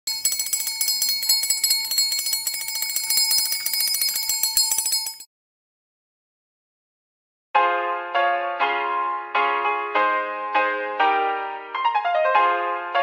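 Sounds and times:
electric bell ringing: 0.1s - 5.3s.

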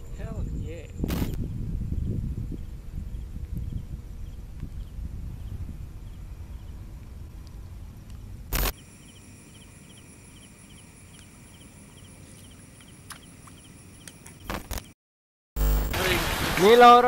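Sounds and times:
night insects trilling: 8.6s - 14.9s.

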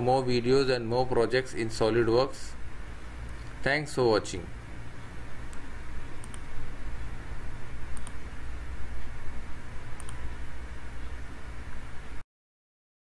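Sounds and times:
microphone hum and hiss: 0.0s - 12.2s
computer mouse clicks: 5.4s - 6.6s, 7.9s - 8.3s, 9.9s - 10.3s.

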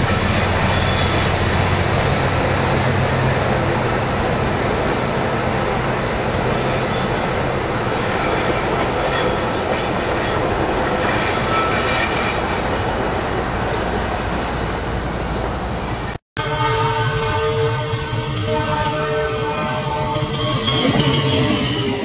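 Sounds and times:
train wheels squealing: 0.0s - 2.4s, 6.0s - 16.2s, 19.5s - 22.0s
train rolling on rails: 0.0s - 22.0s.

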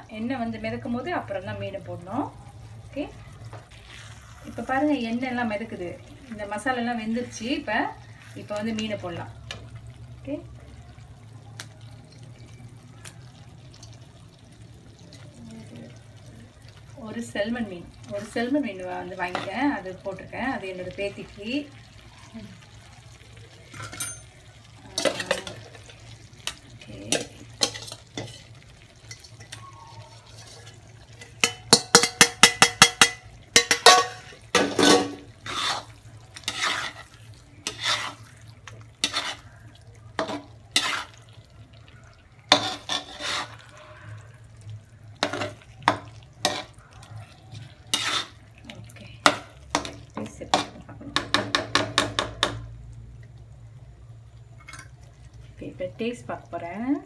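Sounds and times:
spatula scraping a pan: 3.6s - 5.0s, 27.1s - 29.6s, 30.2s - 39.6s, 40.2s - 41.4s, 42.5s - 43.8s, 45.2s - 46.8s, 47.6s - 48.6s.

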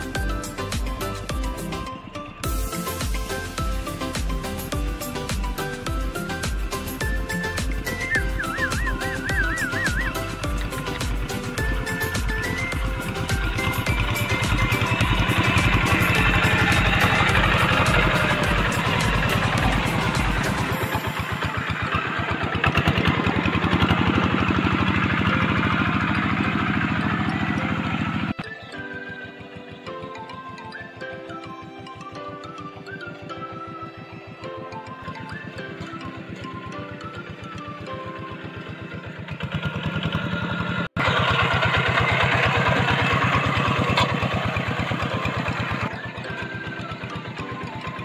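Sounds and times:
music: 0.0s - 41.0s, 42.2s - 48.0s
hand tractor diesel engine running: 0.0s - 48.0s
cage wheels churning mud: 7.8s - 29.8s, 33.5s - 48.0s.

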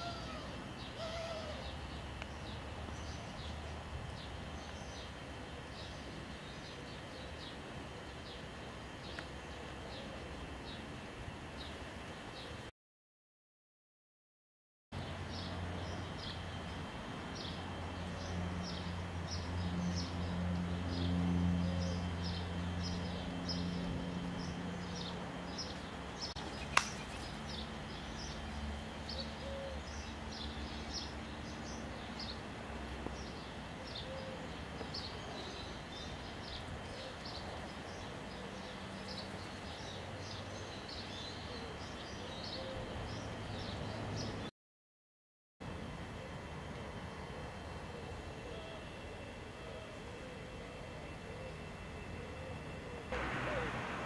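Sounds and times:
small birds chirping: 0.0s - 10.9s, 15.0s - 44.5s
low steady hum: 0.0s - 12.7s, 45.7s - 54.0s
sharp click: 26.7s - 27.0s.

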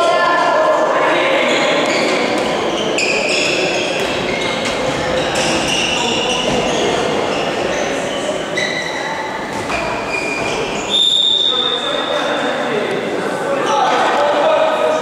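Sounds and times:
sneakers squeaking on floor: 1.4s - 12.4s.

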